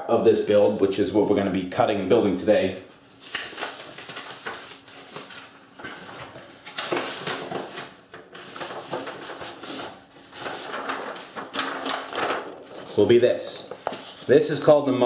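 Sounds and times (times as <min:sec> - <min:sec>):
paper sheets rustling: 0:03.0 - 0:14.8.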